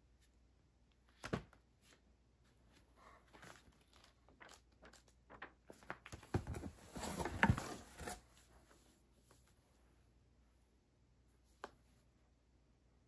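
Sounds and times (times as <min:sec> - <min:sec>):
rummaging in cardboard box: 0:06.2 - 0:08.4.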